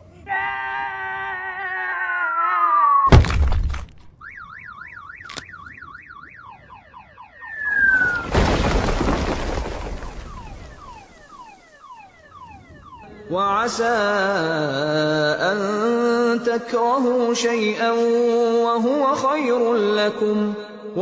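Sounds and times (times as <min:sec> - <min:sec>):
car alarm warbling: 0:04.1 - 0:15.3
falling whistle: 0:04.2 - 0:08.9, 0:09.8 - 0:13.2
loud crashing rumble: 0:07.6 - 0:11.0.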